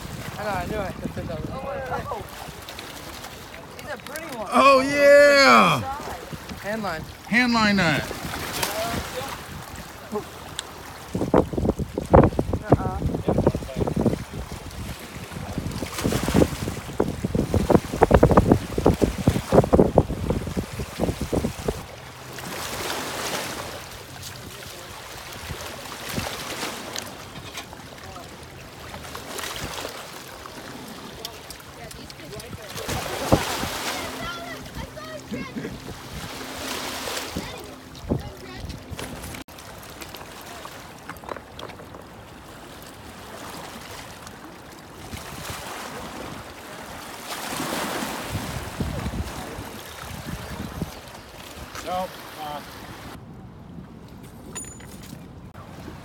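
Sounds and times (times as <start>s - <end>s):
wind gusting across microphone: 0.0s - 2.6s, 10.9s - 21.9s, 48.2s - 51.7s
water lapping at rocky shore: 0.0s - 53.2s.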